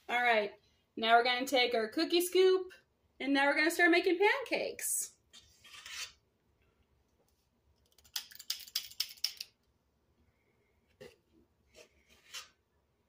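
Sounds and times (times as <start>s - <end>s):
cookie scoop clicking: 7.8s - 9.6s.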